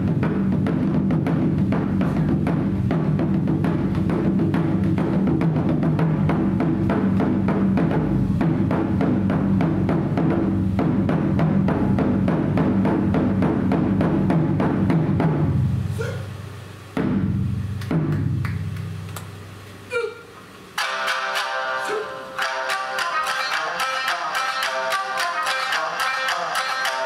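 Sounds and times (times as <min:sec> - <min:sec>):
taiko drum beats: 0:00.0 - 0:15.9, 0:16.9 - 0:19.0
shamisen ensemble plucking: 0:20.8 - 0:27.0.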